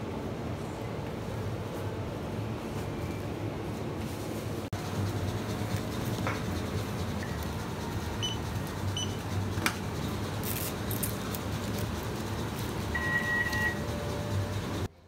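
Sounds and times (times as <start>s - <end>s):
shop background hum: 0.0s - 15.0s
electronic beeps: 8.2s - 8.4s, 12.9s - 13.9s.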